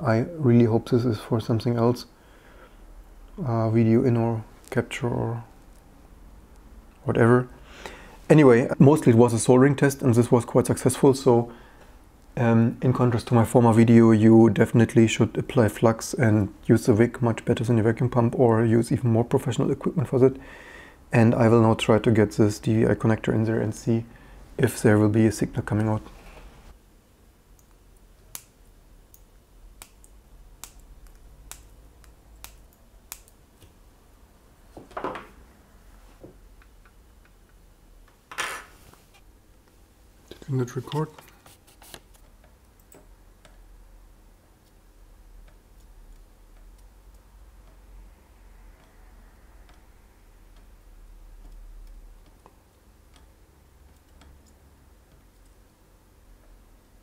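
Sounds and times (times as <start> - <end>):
low steady hum: 0.0 - 57.0
soldering ticks and pops: 27.5 - 33.8, 45.4 - 47.8, 51.4 - 55.6.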